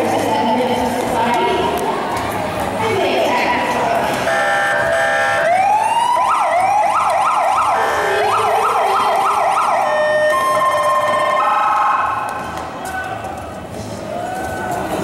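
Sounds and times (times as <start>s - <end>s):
electronic police siren: 4.3s - 12.3s.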